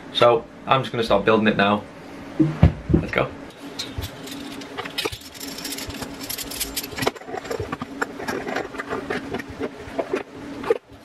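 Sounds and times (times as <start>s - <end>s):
steady hum: 0.0s - 11.0s
metal parts clicking and clattering: 3.5s - 8.8s.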